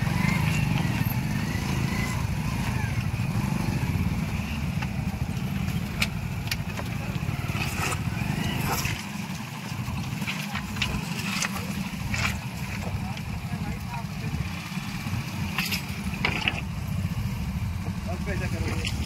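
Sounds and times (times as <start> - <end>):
motorcycle engines idling: 0.0 - 19.0
clicks and knocks on rocks: 4.8 - 13.4, 15.4 - 16.8.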